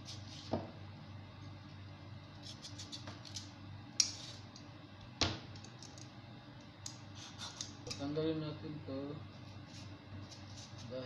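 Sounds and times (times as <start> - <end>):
knife cutting and scraping rind: 2.3 - 4.5, 9.6 - 11.0.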